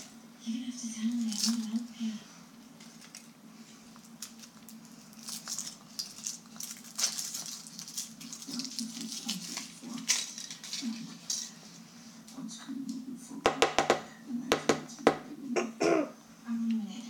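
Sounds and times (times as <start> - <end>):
foil wrapper crinkling: 4.0 - 11.5.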